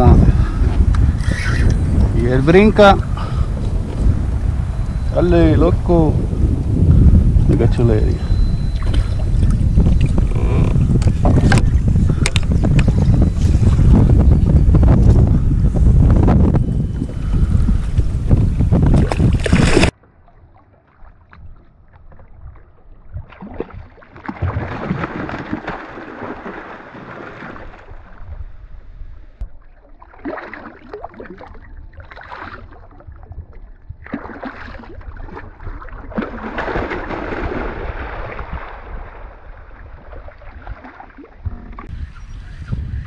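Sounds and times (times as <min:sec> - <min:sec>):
wind buffeting microphone: 0:00.0 - 0:19.9, 0:21.1 - 0:25.4, 0:31.0 - 0:43.0
water sloshing and splashing: 0:18.9 - 0:28.4, 0:29.4 - 0:41.9.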